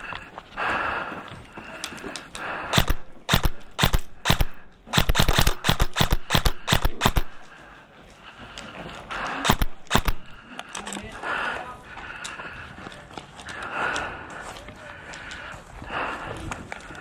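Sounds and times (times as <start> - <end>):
airsoft guns firing: 2.6 - 7.5, 9.3 - 10.4.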